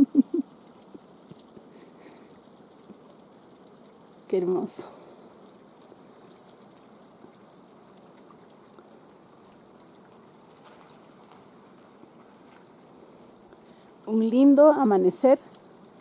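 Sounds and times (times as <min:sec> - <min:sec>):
faint trickle of water: 0:00.0 - 0:16.0.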